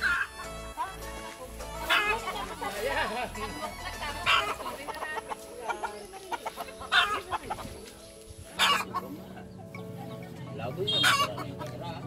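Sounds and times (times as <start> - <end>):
rooster clucking: 4.1 - 7.8, 8.6 - 9.6, 10.9 - 11.8.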